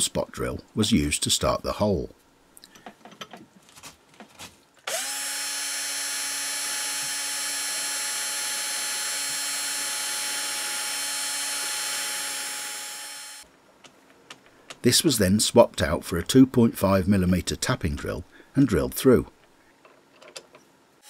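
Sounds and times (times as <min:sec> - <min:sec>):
drill motor whining: 0:04.9 - 0:13.5.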